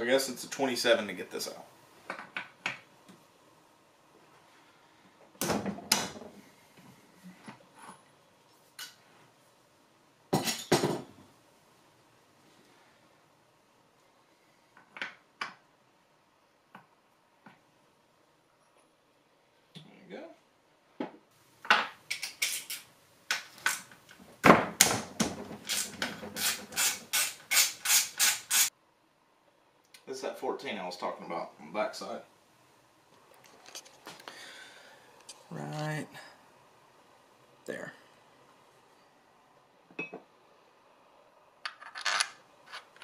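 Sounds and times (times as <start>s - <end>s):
socket ratchet strokes: 25.7s - 28.7s.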